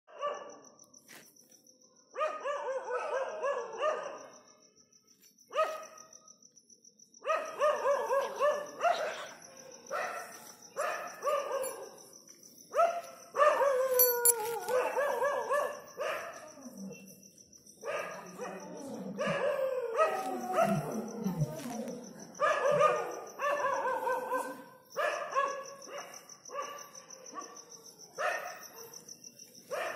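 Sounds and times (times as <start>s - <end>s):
dog barking and yelping: 7.3s - 11.8s, 12.7s - 17.1s, 17.8s - 27.6s
dog whining: 13.7s - 15.2s, 18.3s - 22.0s.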